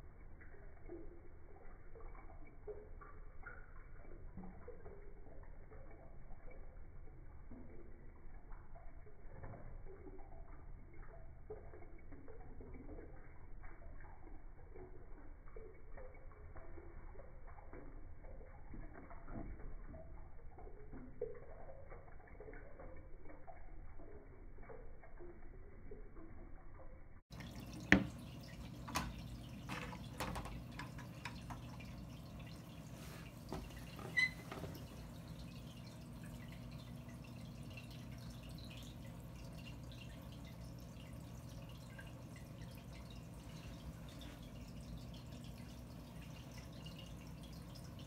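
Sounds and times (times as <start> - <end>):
slowed bubbles and gurgles: 0.0 - 29.7
filter pump hum: 0.0 - 48.0
water trickling and dripping: 0.0 - 48.0.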